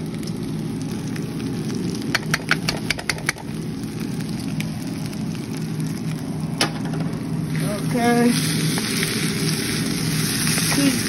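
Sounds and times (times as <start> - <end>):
steady low hum: 0.0 - 11.0
spatula clicking on metal pan: 2.1 - 3.4.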